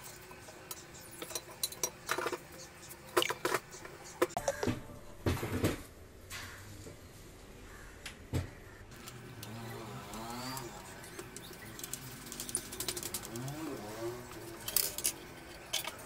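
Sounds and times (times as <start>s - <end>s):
metal frame parts clicking: 9.0s - 16.0s.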